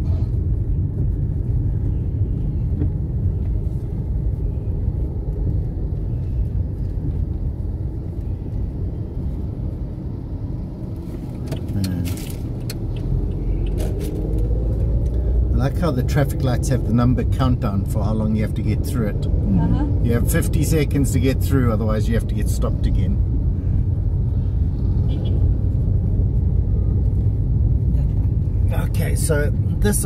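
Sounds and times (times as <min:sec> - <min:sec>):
car engine and tyres rumbling: 0:00.0 - 0:30.0.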